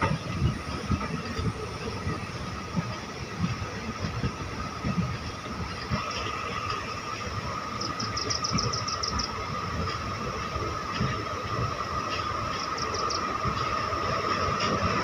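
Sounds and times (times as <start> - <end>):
rumble of train wheels on track: 0.0 - 15.0.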